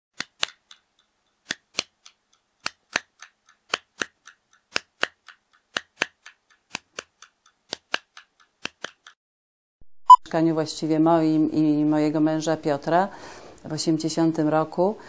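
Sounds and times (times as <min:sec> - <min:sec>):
rhythmic dry ticking clicks: 0:00.6 - 0:09.2.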